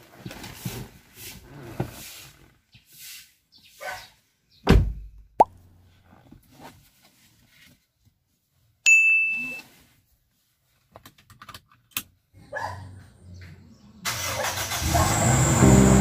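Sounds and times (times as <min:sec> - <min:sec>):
bright ding: 0:08.9 - 0:09.6.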